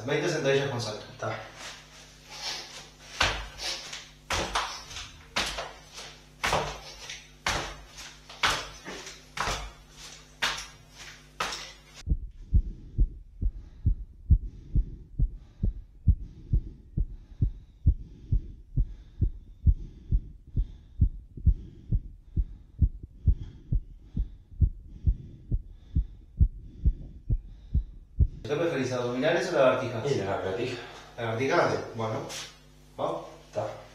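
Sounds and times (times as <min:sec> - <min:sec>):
room noise: 0:00.0 - 0:33.9
heartbeat through stethoscope: 0:12.0 - 0:28.5.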